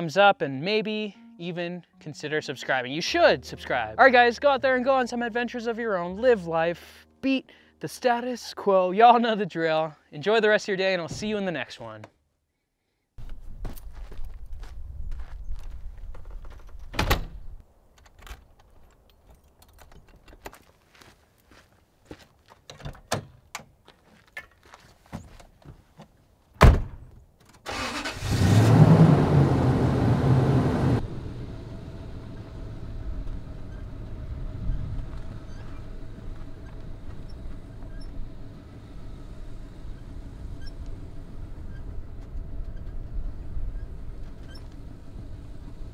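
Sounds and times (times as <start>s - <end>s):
truck door shutting: 26.6s - 27.1s
truck engine starting and running: 27.6s - 45.9s.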